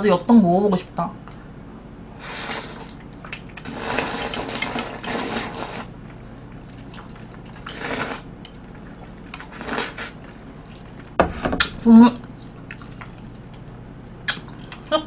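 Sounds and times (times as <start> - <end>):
slurping noodles: 2.2 - 6.0, 6.9 - 8.3, 9.3 - 10.2.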